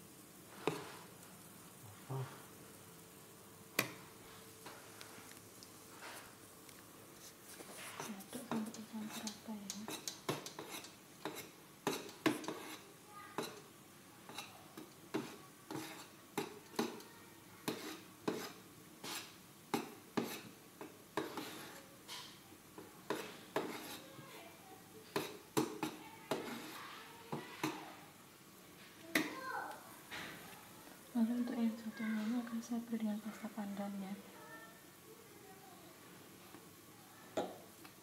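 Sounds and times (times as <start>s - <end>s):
metal spoon stirring batter in bowl: 7.6s - 24.2s, 25.1s - 27.8s.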